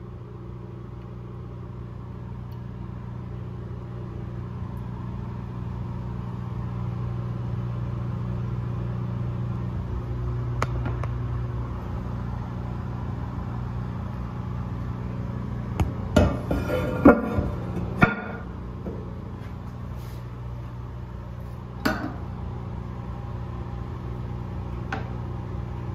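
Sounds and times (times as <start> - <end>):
low electrical hum: 0.0 - 25.9.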